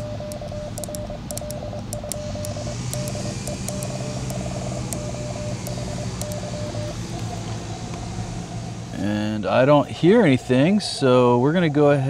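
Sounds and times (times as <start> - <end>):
morse code tone: 0.0 - 8.7
radio receiver noise: 0.0 - 8.7
low steady hum: 0.0 - 12.0.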